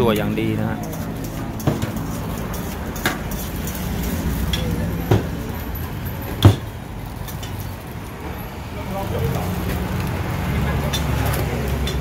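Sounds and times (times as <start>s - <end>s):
metal utensils clinking on pots: 0.0s - 8.3s, 9.1s - 12.0s.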